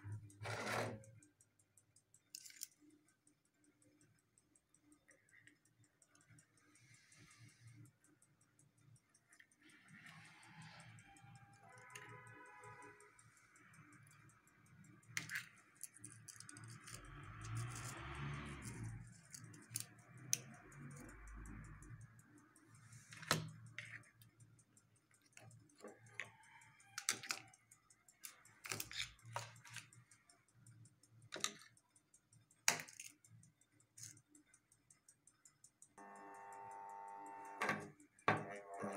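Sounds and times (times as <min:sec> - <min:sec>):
tools clicking and knocking on workbench: 0:27.0 - 0:27.6, 0:28.2 - 0:30.0, 0:31.3 - 0:31.8, 0:32.6 - 0:33.2, 0:37.6 - 0:38.6.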